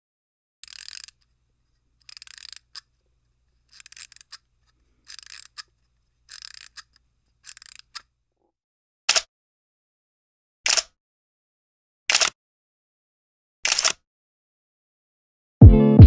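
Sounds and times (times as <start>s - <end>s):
sharp mechanical click: 0.6s - 1.3s, 2.0s - 2.9s, 5.1s - 5.7s, 6.3s - 8.1s, 10.7s - 11.0s, 12.1s - 12.4s, 13.6s - 14.0s.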